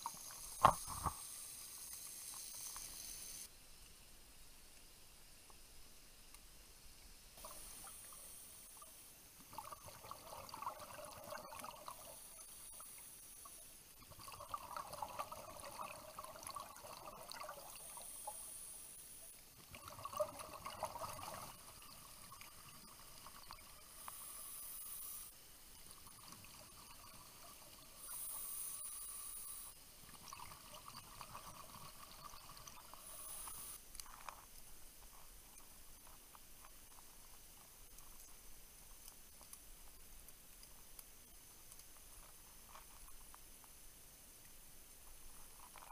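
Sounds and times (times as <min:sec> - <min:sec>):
regulator inhale hiss: 0:00.0 - 0:03.5, 0:07.4 - 0:08.9, 0:17.8 - 0:19.3, 0:23.9 - 0:25.4, 0:28.0 - 0:29.9, 0:33.0 - 0:33.8
faint steady hum: 0:00.0 - 0:45.9
exhaled bubbles gurgling: 0:09.5 - 0:12.8, 0:14.0 - 0:18.2, 0:19.6 - 0:24.0, 0:25.9 - 0:28.4, 0:30.1 - 0:33.8.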